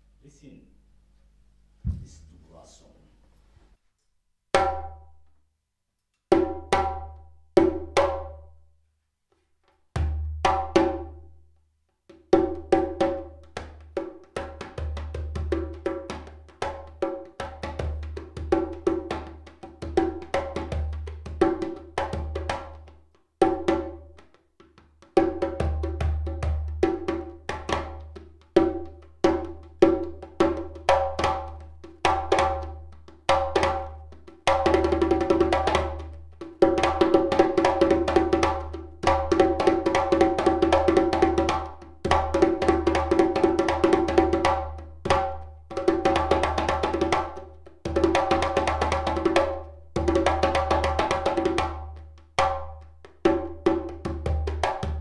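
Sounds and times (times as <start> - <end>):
faint low hum: 0.0 - 4.2
djembe struck by hand: 1.9 - 2.3, 4.5 - 5.1, 6.3 - 8.5, 9.9 - 11.2, 12.1 - 55.0
djembe hand strokes: 1.9 - 2.6.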